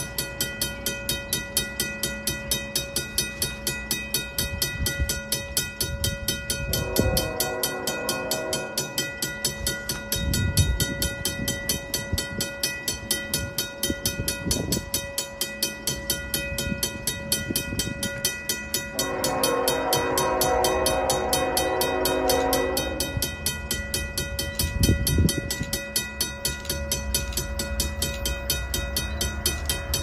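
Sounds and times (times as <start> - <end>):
level crossing bell ringing: 0.3 - 30.0
train horn blast: 6.7 - 9.0, 18.9 - 23.4.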